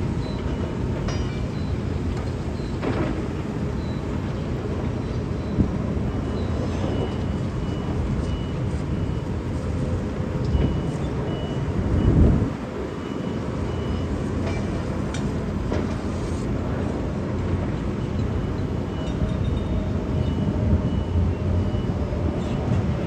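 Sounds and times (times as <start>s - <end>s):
diesel crane engine under load: 0.0s - 23.0s
short high warning beeps: 5.0s - 12.3s, 12.9s - 14.8s, 18.0s - 22.3s.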